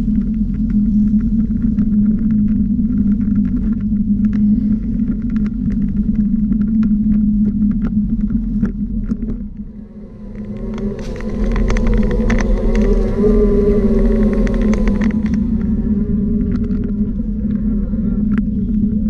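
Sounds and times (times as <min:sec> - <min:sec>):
low rolling rumble: 0:00.0 - 0:19.0
wavering whine: 0:00.0 - 0:19.0.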